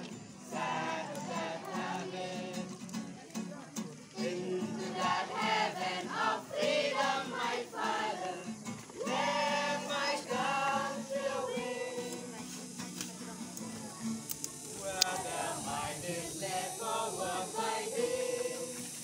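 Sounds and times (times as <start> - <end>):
acoustic guitar: 0.0 - 19.0
boys choir singing: 0.4 - 2.8, 4.1 - 12.6, 14.7 - 19.0.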